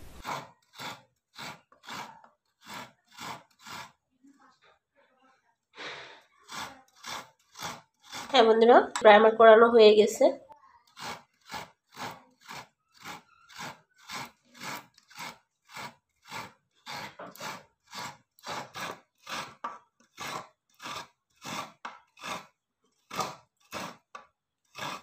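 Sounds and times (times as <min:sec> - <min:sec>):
knife scraping coconut flesh: 0:00.0 - 0:04.0, 0:06.3 - 0:08.5, 0:10.8 - 0:25.0.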